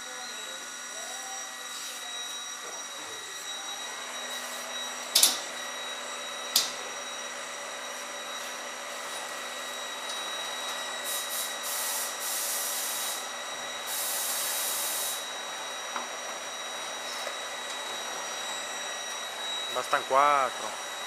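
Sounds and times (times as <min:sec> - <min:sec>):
machine hum and whine: 0:00.0 - 0:21.0
hissing air bursts: 0:11.0 - 0:15.2.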